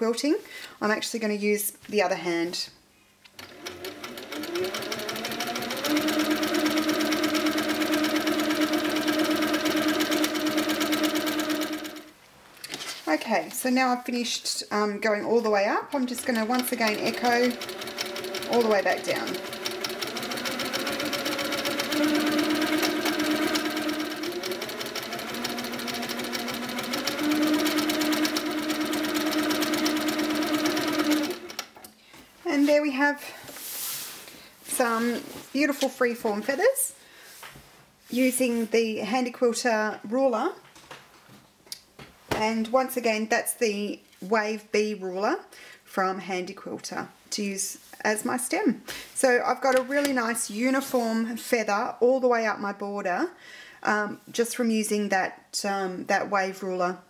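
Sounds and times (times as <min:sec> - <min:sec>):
quilting machine stitching: 0:03.4 - 0:12.1, 0:16.0 - 0:31.8
rapid needle strokes: 0:03.4 - 0:12.1.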